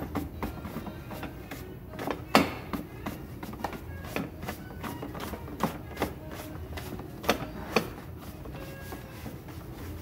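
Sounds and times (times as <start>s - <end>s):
hands tapping and knocking on felt hat: 0.0s - 9.6s.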